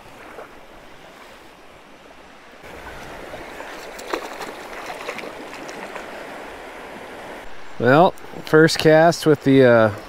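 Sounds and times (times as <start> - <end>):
river water flowing: 0.0 - 10.0
short sharp splashes: 3.5 - 6.1.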